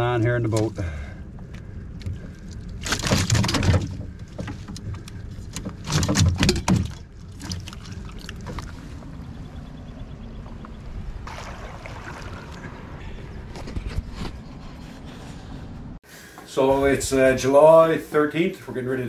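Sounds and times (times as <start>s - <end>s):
fish flapping and slapping: 2.1s - 9.0s
net knocks and rustles: 2.8s - 4.9s.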